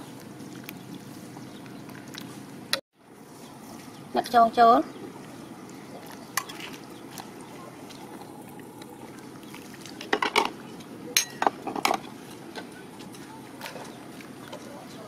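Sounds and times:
metal ladle clinking against pot: 11.2 - 11.9.

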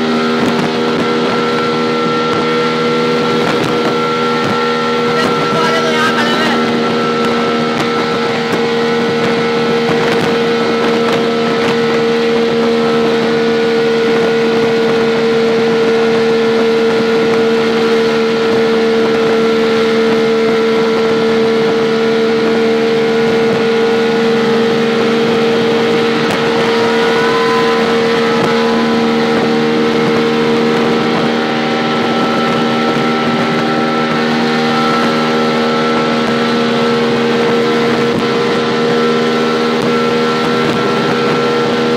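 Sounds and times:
wind and road rush: 0.0 - 41.9
rickshaw engine running: 24.8 - 34.0.

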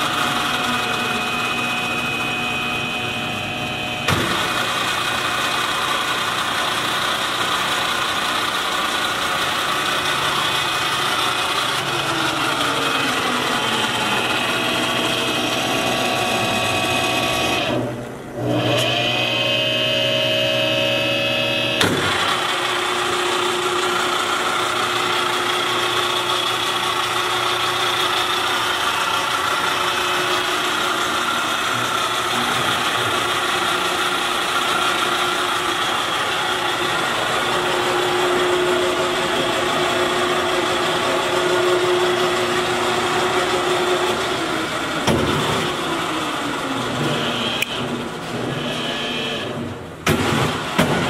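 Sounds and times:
electric motor humming: 0.0 - 47.8.

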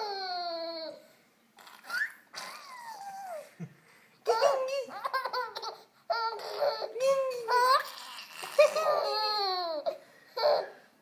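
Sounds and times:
infant babbling and squealing: 4.3 - 10.8.

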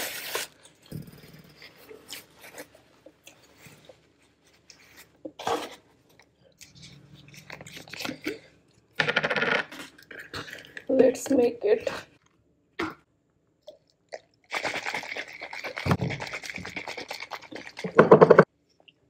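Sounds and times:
chewing with wet mouth noises: 6.2 - 8.9, 13.6 - 17.9.

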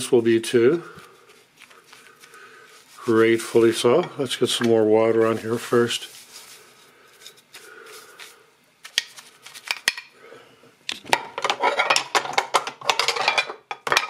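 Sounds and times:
metal parts clinking in basin: 11.1 - 14.0.

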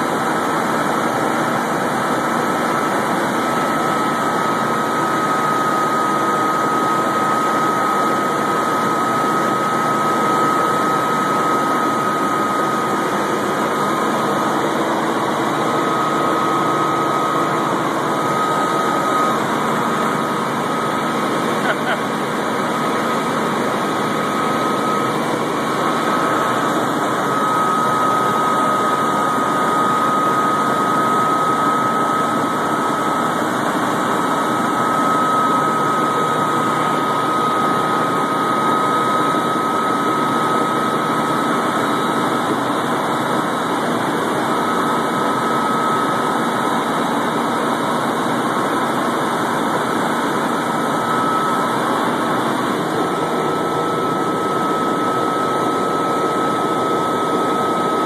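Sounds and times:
helicopter engine and rotor noise: 0.0 - 58.0
high whine: 0.0 - 58.0.

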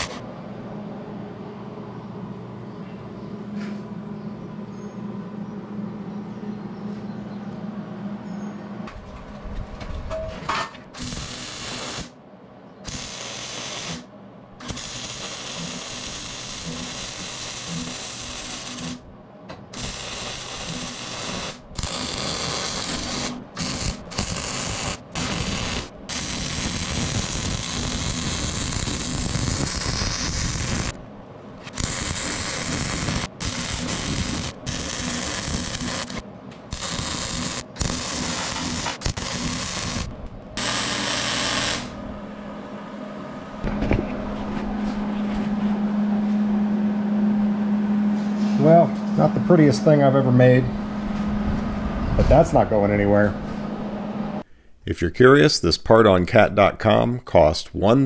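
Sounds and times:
welding arc crackling: 0.0 - 0.2, 11.0 - 12.2, 12.8 - 19.1, 19.7 - 42.0
steady low hum: 0.0 - 58.0.

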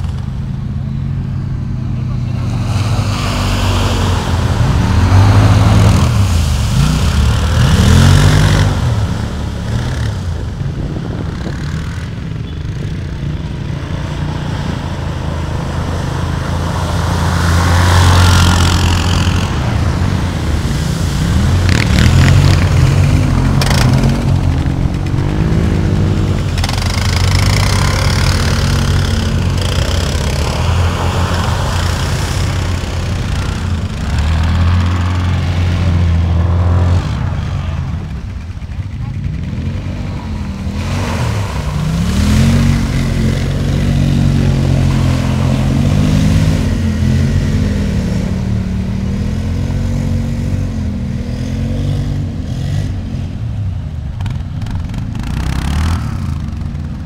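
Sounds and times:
quad bike engines revving: 0.0 - 57.0
water splashing: 2.4 - 10.6, 14.0 - 38.6, 39.8 - 49.4.

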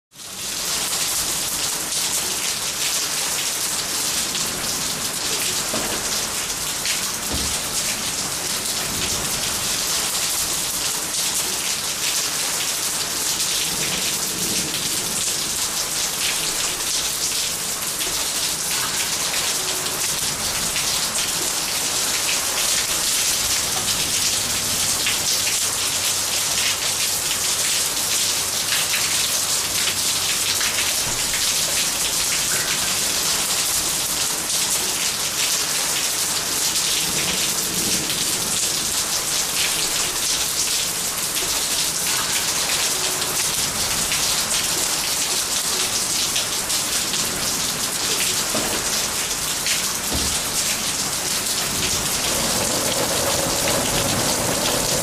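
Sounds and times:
steady rain patter: 0.1 - 55.0.

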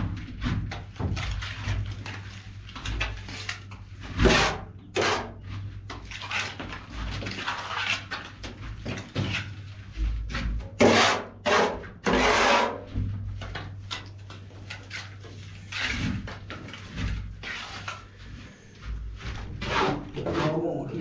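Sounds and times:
trowel scraping cement: 2.8 - 9.6, 10.8 - 12.9, 14.0 - 18.7, 19.5 - 21.0.

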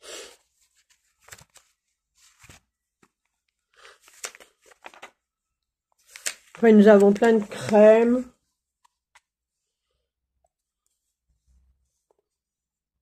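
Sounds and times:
paper rustling: 0.3 - 5.3, 5.9 - 9.4.

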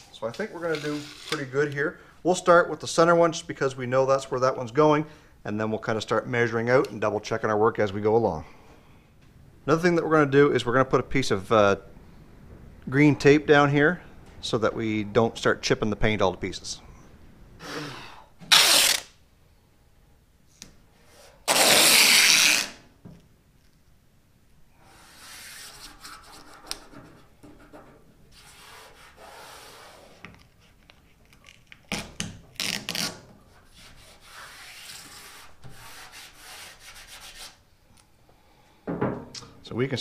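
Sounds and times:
hands rubbing tape onto metal: 0.0 - 1.8, 18.4 - 19.1, 20.6 - 22.8, 24.9 - 37.6
masking tape ripping off roll: 18.4 - 19.2, 21.4 - 22.9, 31.4 - 33.3.

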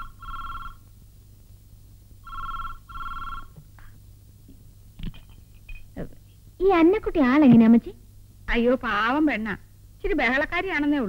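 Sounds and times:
telephone ringing: 0.0 - 0.8, 2.2 - 3.6.

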